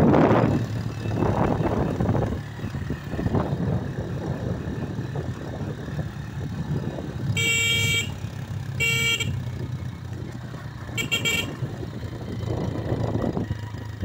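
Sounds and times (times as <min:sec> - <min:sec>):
motorcycle engine running: 0:00.0 - 0:14.0
motorcycle horn beeps: 0:07.2 - 0:09.6, 0:10.9 - 0:11.8.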